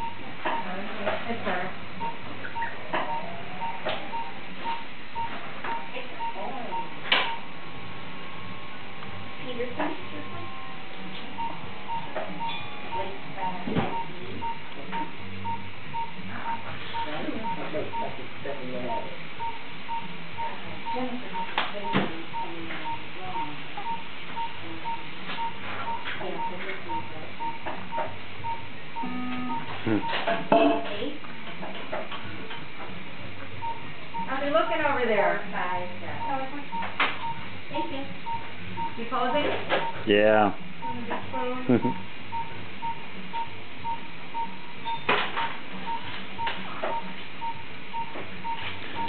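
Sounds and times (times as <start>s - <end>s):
heart-rate monitor beeping: 0.0s - 30.9s, 33.5s - 40.1s, 40.8s - 49.0s
low hum: 3.2s - 17.6s.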